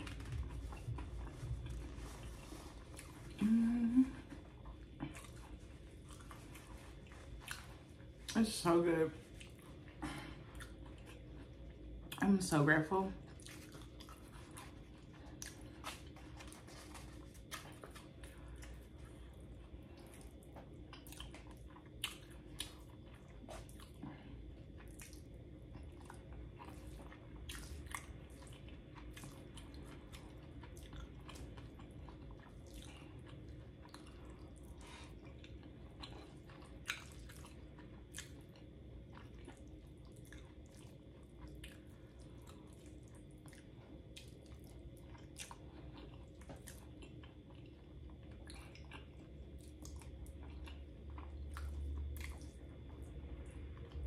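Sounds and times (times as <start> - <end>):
chewing and wet mouth sounds: 0.0 - 54.0.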